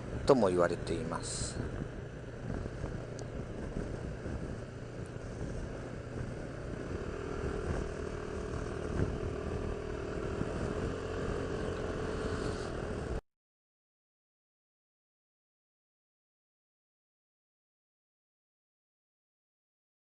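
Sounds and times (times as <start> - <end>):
motorcycle engine running: 0.0 - 13.2
steady engine hum: 0.0 - 13.2
wind noise: 0.0 - 13.2.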